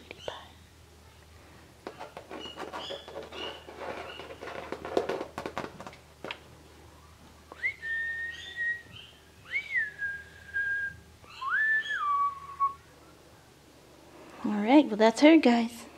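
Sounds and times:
person whistling: 7.6 - 8.9, 9.5 - 12.8.

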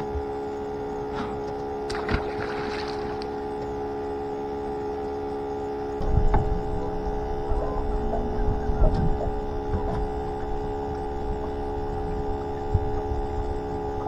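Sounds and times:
pump whining: 0.0 - 14.0
low rumble: 6.0 - 14.0.

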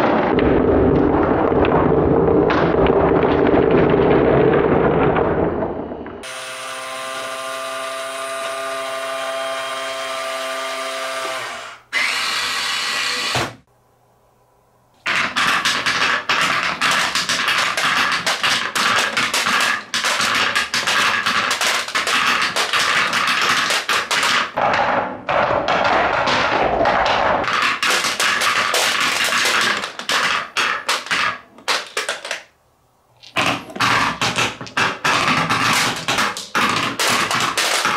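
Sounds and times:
wooden balls clattering down ramps: 0.0 - 6.5, 15.0 - 32.6, 33.2 - 37.9.

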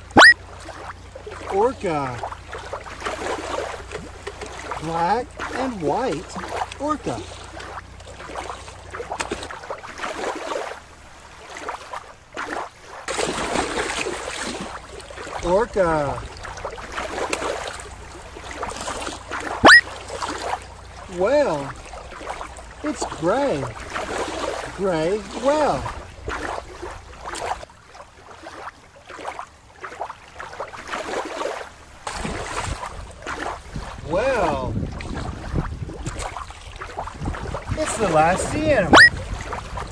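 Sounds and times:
shallow water splashing: 0.0 - 39.9
killer whale splashing into pool: 13.1 - 14.9, 32.1 - 33.6.

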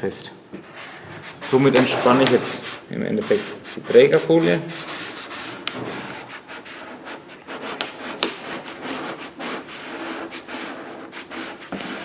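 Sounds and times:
squeegee rubbing on paper: 0.6 - 12.0.

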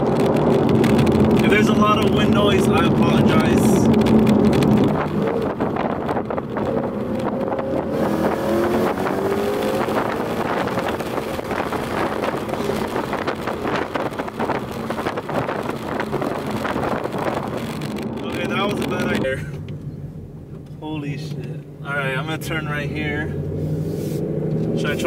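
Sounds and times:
wind noise: 0.0 - 19.9
car engine accelerating: 0.0 - 25.0.

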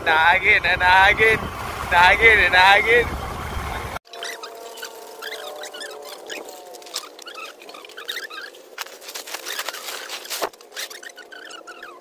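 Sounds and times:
plastic tarpaulin rustling: 4.4 - 11.6.

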